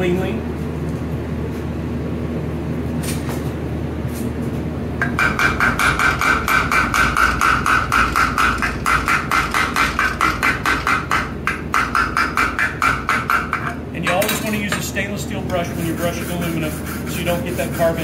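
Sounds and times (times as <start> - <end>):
steady low hum: 0.0 - 18.0
chipping hammer striking metal: 5.0 - 14.2.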